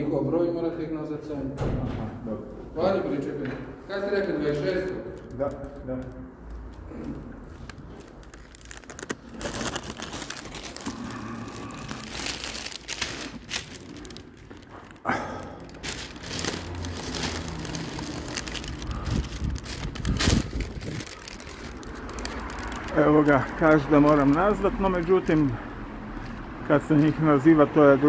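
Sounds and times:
material rustling on microphone: 0:15.8 - 0:22.9.

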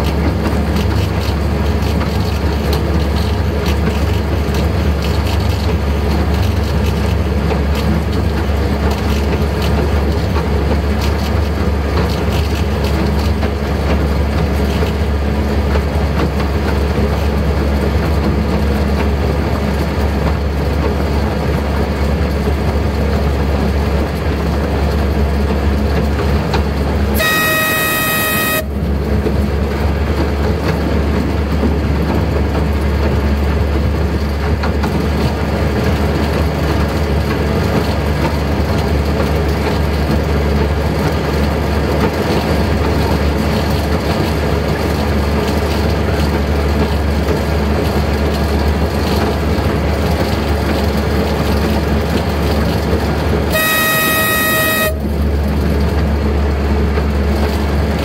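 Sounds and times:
locomotive rumble: 0:00.0 - 0:58.0
train horn toot: 0:27.2 - 0:29.0, 0:53.5 - 0:55.3.

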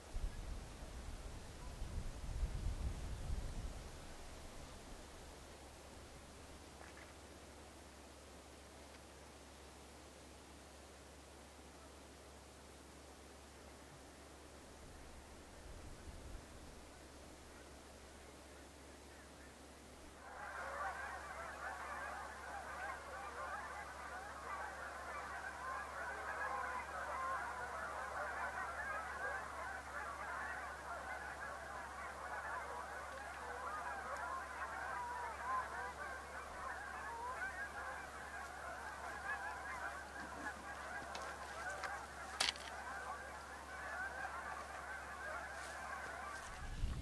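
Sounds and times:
flock of geese honking: 0:14.9 - 0:47.0.

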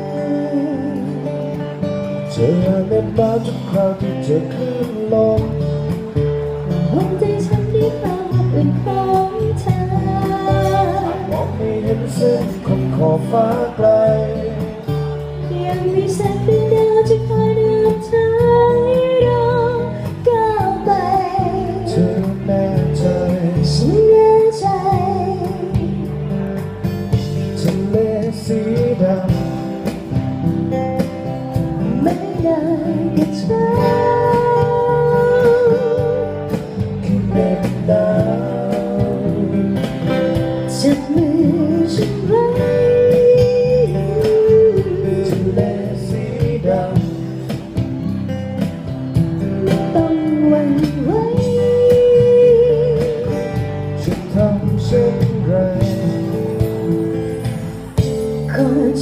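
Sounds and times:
acoustic guitar: 0:00.0 - 0:59.0
electric bass: 0:00.0 - 0:59.0
woman singing with vibrato: 0:06.9 - 0:12.7, 0:15.4 - 0:22.1, 0:31.8 - 0:36.6, 0:40.8 - 0:46.6, 0:49.5 - 0:54.5.

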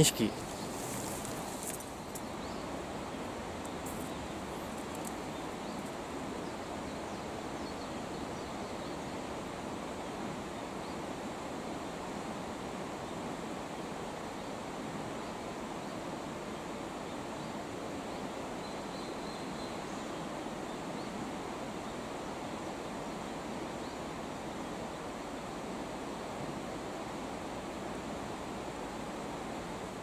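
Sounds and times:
river rushing over stones: 0:00.0 - 0:07.5.

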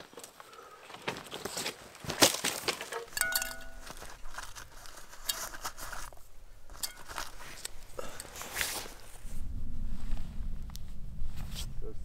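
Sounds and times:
metal bowl clinking: 0:03.1 - 0:04.2
footsteps on dry leaves: 0:03.5 - 0:09.1.

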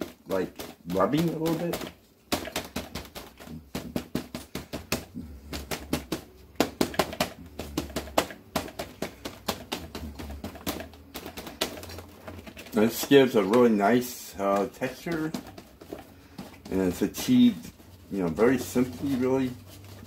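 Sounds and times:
paper towel dabbing on paper: 0:00.0 - 0:20.0.

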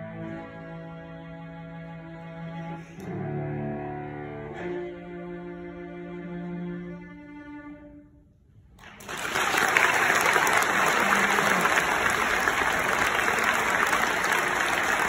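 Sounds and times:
solo cello notes: 0:00.0 - 0:08.0
audience applause: 0:08.8 - 0:15.0.

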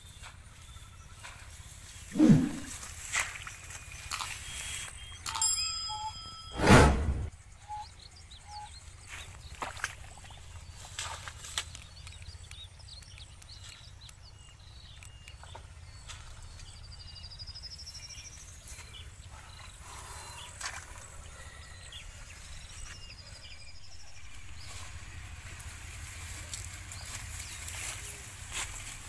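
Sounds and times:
grass rustling and snapping: 0:00.1 - 0:05.0, 0:09.2 - 0:16.7, 0:24.2 - 0:29.0
high rising bird trill: 0:02.1 - 0:02.8
bird chirps: 0:02.1 - 0:06.5, 0:07.2 - 0:20.6, 0:21.2 - 0:25.7.

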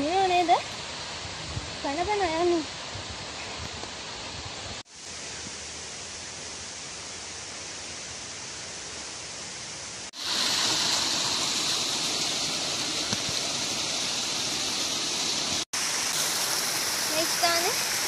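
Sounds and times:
rocky stream rushing: 0:10.1 - 0:18.0.

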